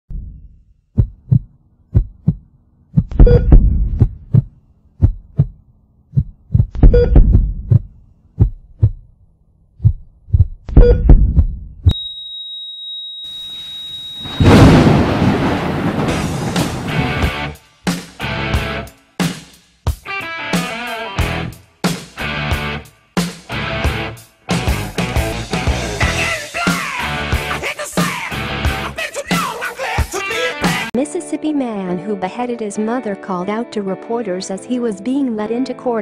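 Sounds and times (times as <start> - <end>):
heartbeat thumps: 1.0 - 9.1, 9.8 - 11.9
steady high beep: 3.2 - 3.5, 11.9 - 14.6.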